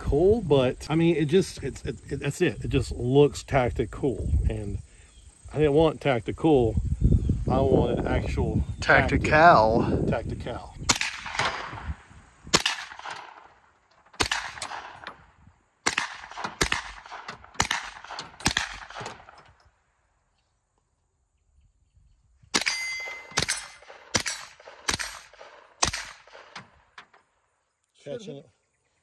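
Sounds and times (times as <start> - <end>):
pistol gunshots: 10.9 - 11.9, 12.5 - 15.2, 15.8 - 19.4, 22.5 - 26.8.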